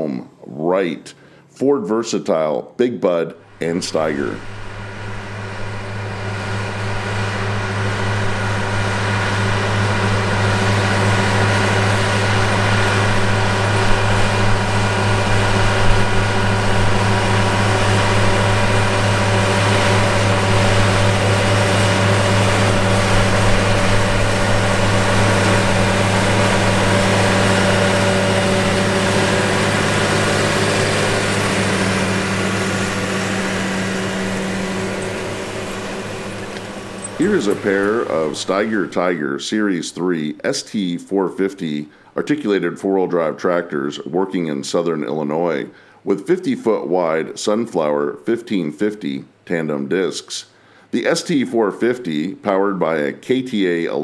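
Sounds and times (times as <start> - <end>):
tractor diesel engine under load: 3.4 - 39.3.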